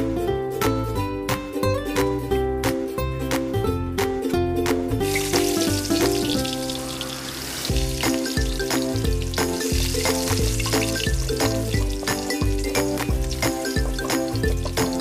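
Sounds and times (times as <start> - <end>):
background music plucked notes: 0.0 - 15.0
garlic sizzling in hot oil: 5.0 - 15.0.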